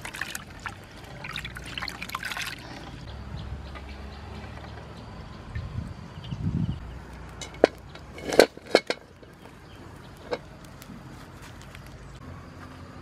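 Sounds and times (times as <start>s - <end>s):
water sloshing in a basin: 0.0s - 3.0s.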